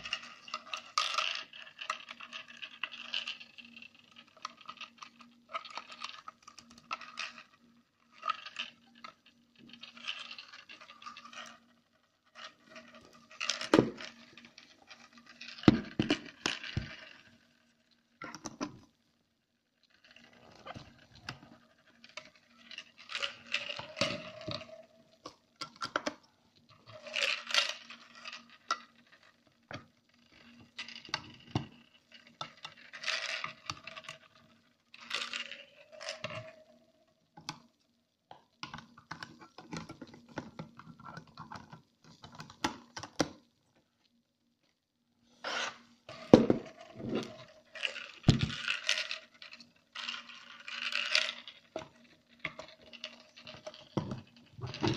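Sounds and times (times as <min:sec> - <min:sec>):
plastic parts scraping and clicking: 0:20.0 - 0:36.6, 0:38.6 - 0:43.4, 0:45.4 - 0:54.9.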